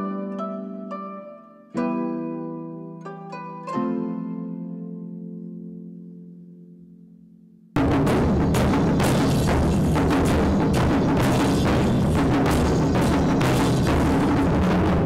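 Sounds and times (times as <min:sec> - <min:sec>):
taiko drums struck with sticks: 0:07.8 - 0:15.0.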